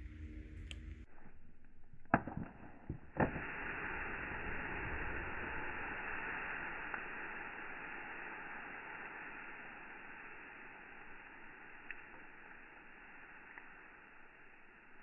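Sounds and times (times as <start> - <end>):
clicks: 0.0 - 1.1
air blowing out of oven: 3.2 - 11.6.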